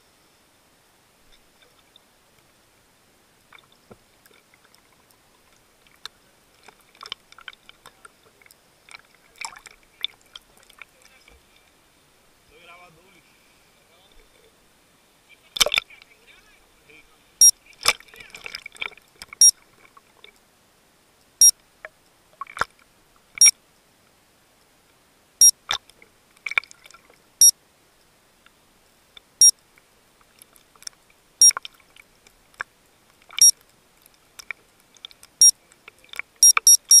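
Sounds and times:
clicks and knocks underwater: 3.5s - 11.6s, 15.6s - 16.1s, 17.8s - 20.4s, 21.8s - 23.4s, 25.6s - 27.2s
short high electronic beep: 36.4s - 37.0s.

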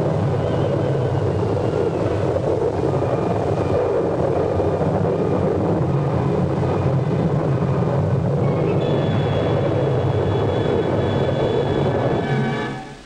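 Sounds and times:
rushing tornado wind: 0.0s - 13.0s
faint whistling tones: 0.3s - 2.3s, 8.4s - 13.0s.

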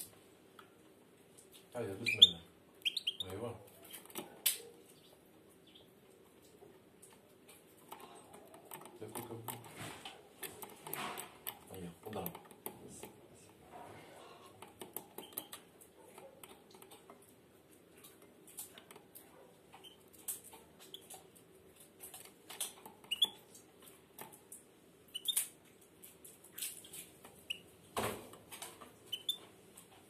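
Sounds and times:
goldfinch chirping: 2.0s - 3.3s.

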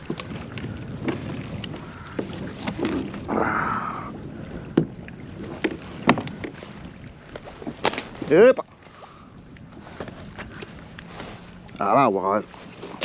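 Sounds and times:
knocks and clicks on kayak hull: 0.0s - 3.2s, 4.7s - 6.7s.

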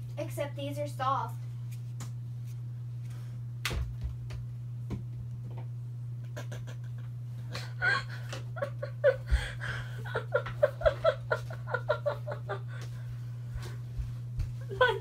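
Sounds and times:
ceiling fan humming: 0.0s - 15.0s
person giggling and laughing: 6.3s - 13.0s, 14.6s - 15.0s.

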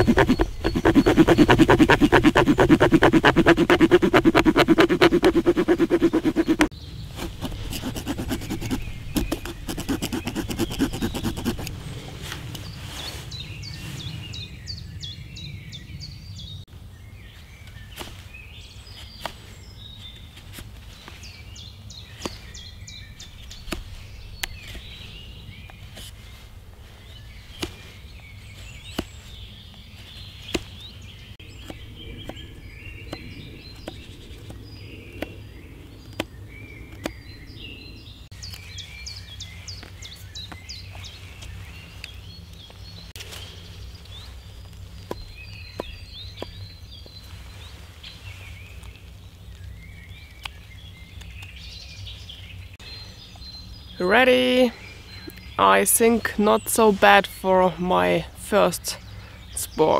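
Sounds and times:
knife shaving wood: 0.0s - 11.8s
birds chirping: 0.0s - 59.9s.

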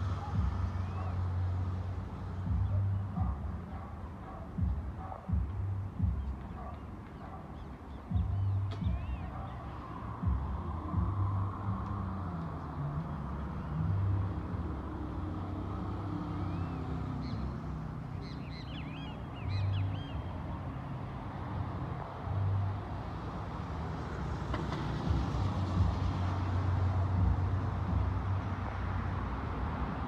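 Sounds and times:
low engine rumble: 0.0s - 24.2s
high chirping bird calls: 6.0s - 10.6s, 16.4s - 20.5s.

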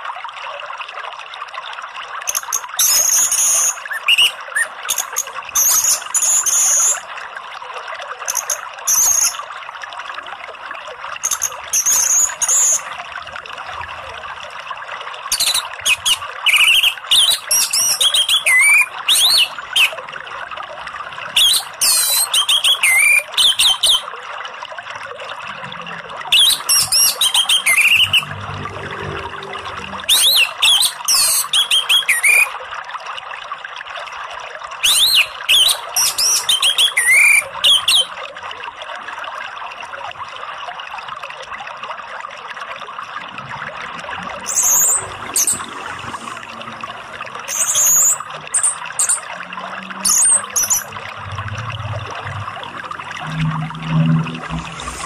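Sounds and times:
flowing water rushing: 0.0s - 55.0s
thrush singing whistles: 5.6s - 7.0s, 11.2s - 12.9s, 15.3s - 19.9s, 21.4s - 24.0s, 26.4s - 28.3s, 30.1s - 32.5s, 34.8s - 38.1s, 47.5s - 49.2s.

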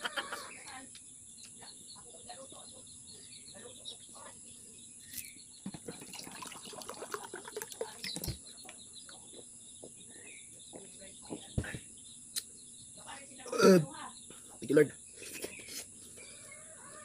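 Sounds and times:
bird chirps: 0.0s - 17.0s
water gurgling into a mug: 5.8s - 8.3s.

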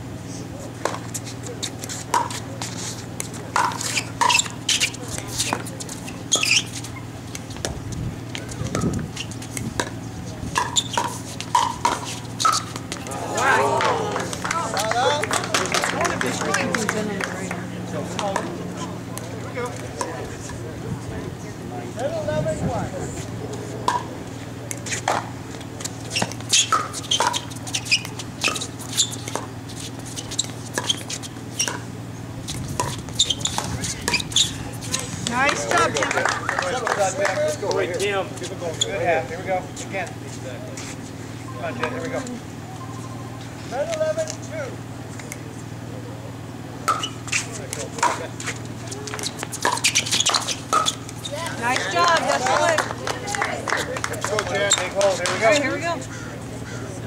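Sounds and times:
paddles striking pickleball: 1.9s - 20.6s, 23.8s - 31.9s, 32.5s - 38.1s, 46.8s - 52.8s
sneakers squeaking on court: 3.6s - 13.2s, 24.9s - 35.7s, 46.8s - 52.0s.

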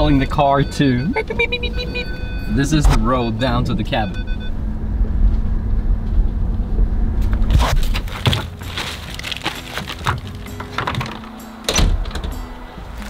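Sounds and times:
car cabin rumble: 0.0s - 13.0s
shopping bags knocking and rustling: 7.5s - 11.4s.

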